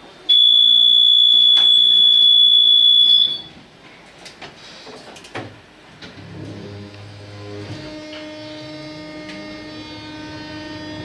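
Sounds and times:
high-pitched door warning beep: 0:00.3 - 0:03.6.

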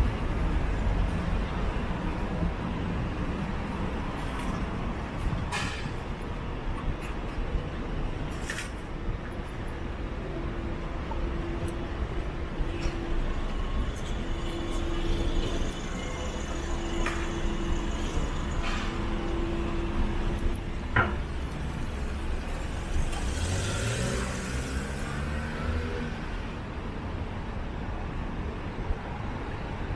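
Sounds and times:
traffic rumble: 0:00.0 - 0:29.9
vehicle accelerating past: 0:23.0 - 0:26.2.

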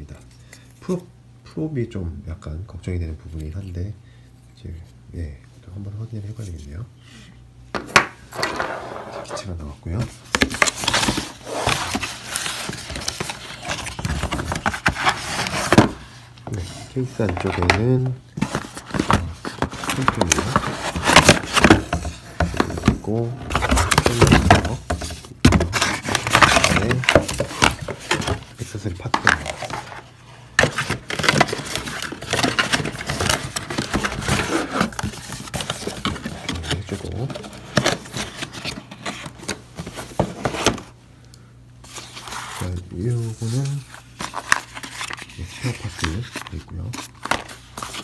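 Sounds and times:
cardboard box rustling and scraping: 0:10.1 - 0:40.9
cardboard sliding and scraping: 0:10.8 - 0:17.5.

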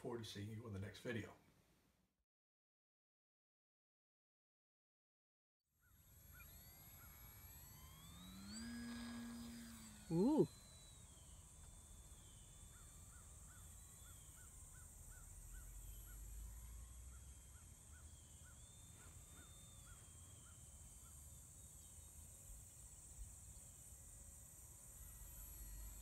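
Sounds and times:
distant electric motor whine: 0:05.8 - 0:26.0.

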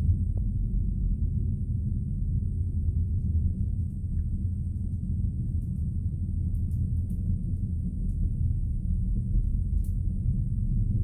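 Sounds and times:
distant rocket engine rumble: 0:00.0 - 0:11.0.

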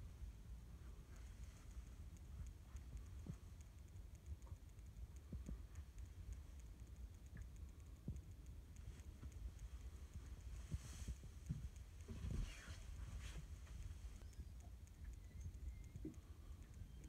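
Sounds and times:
faint low rumble: 0:00.0 - 0:17.0
fast high ticking: 0:00.1 - 0:12.1.

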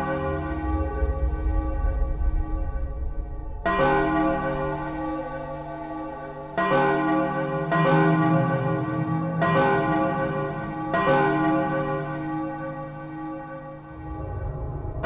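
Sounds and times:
bells ringing: 0:03.6 - 0:13.0.

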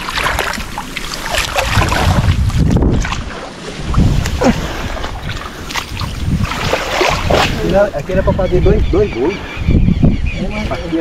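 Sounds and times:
muddy water sloshing and splashing: 0:00.0 - 0:08.2
wind buffeting microphone: 0:01.3 - 0:11.0.

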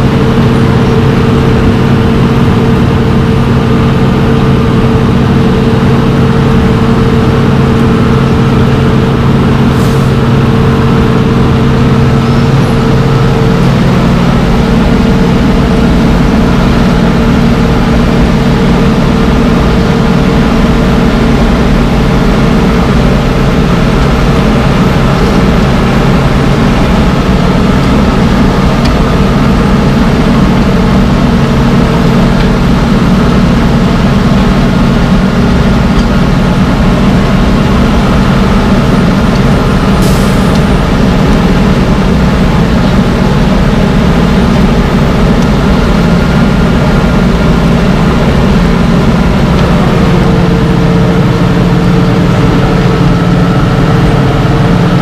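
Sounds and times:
milling machine diesel engine: 0:00.0 - 0:55.0.

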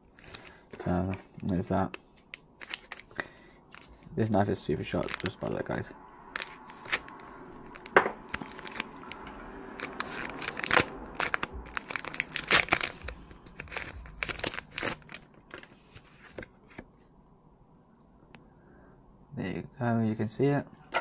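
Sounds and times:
foil wrapper crinkling and tearing: 0:00.1 - 0:01.6, 0:02.6 - 0:04.0, 0:04.8 - 0:05.6, 0:06.4 - 0:16.8.

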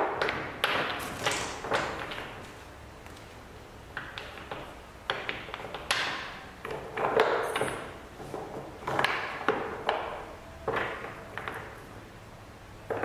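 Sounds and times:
wooden blocks clacking: 0:00.0 - 0:02.5, 0:03.9 - 0:11.8
blocks knocking on wooden bench: 0:04.0 - 0:11.7.

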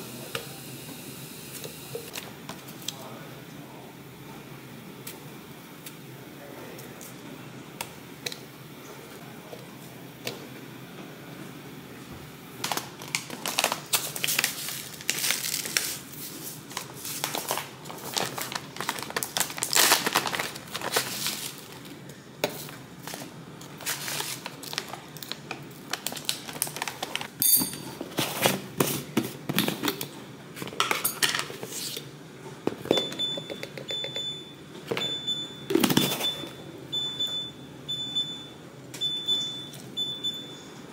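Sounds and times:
food packaging crinkling: 0:12.6 - 0:22.0, 0:22.6 - 0:27.4.

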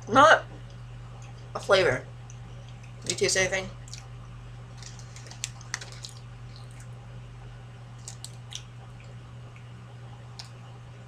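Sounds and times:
steady low hum: 0:00.0 - 0:11.0
wet mouth clicks while chewing: 0:03.8 - 0:04.1, 0:04.8 - 0:06.9, 0:08.0 - 0:09.7.

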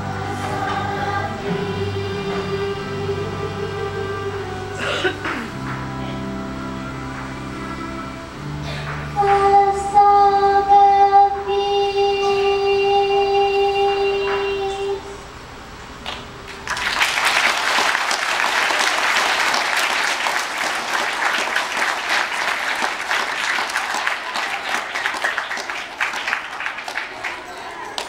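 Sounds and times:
children's choir singing: 0:00.0 - 0:15.3
audience applause: 0:16.1 - 0:28.0.

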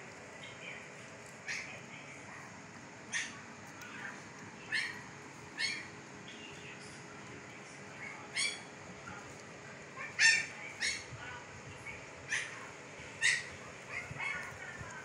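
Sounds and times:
puppies squeaking and whimpering: 0:04.8 - 0:06.0.

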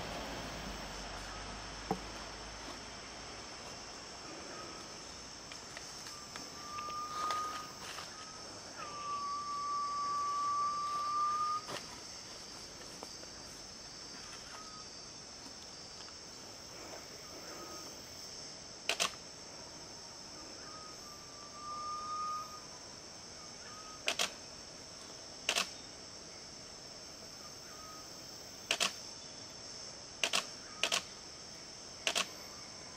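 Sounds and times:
high insect hum: 0:00.0 - 0:32.9
bird whistling: 0:06.1 - 0:07.8, 0:08.8 - 0:11.6, 0:20.6 - 0:22.7
camera shutter clicks: 0:18.9 - 0:19.2, 0:24.1 - 0:24.4, 0:25.5 - 0:25.7, 0:28.7 - 0:29.0, 0:30.2 - 0:31.1, 0:32.1 - 0:32.3.

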